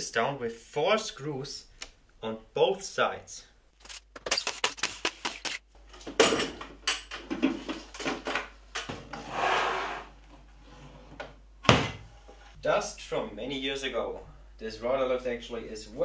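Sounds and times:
scraping rub: 9.2s - 11.1s.

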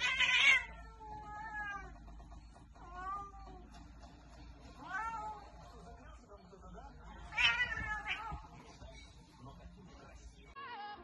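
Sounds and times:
cats meowing: 0.0s - 2.1s, 2.8s - 3.7s, 4.8s - 5.5s, 7.2s - 8.6s.

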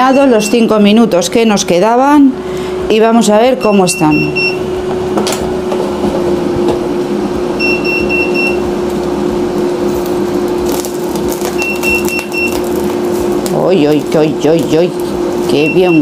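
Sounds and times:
air fryer fan humming: 0.0s - 16.0s
short high beeps: 3.6s - 4.8s, 7.6s - 8.7s.

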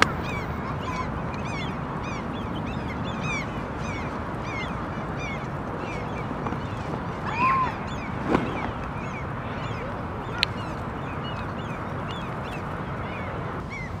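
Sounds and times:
geese and goslings calling: 0.0s - 14.0s
steady background rush: 0.0s - 14.0s.

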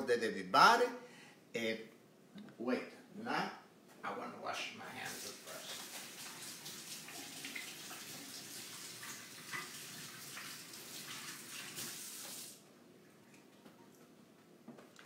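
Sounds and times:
faucet water splashing over hands: 5.0s - 12.6s.

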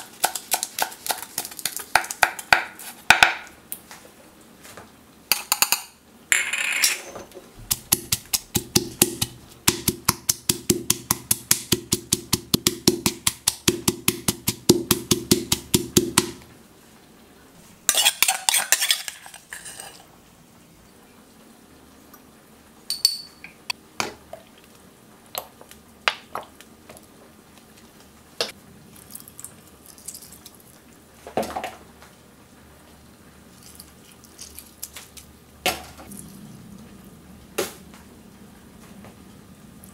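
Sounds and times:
pestle pounding in stone mortar: 0.0s - 3.5s, 7.6s - 16.4s
metal spoon scraping mortar: 17.9s - 20.0s.

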